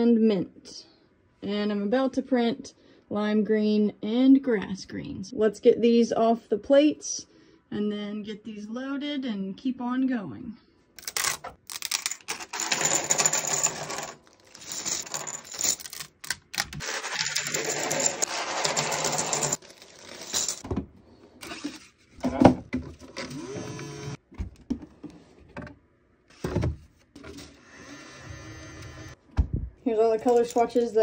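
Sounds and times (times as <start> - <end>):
plastic pieces clattering onto bench: 11.0 - 20.7.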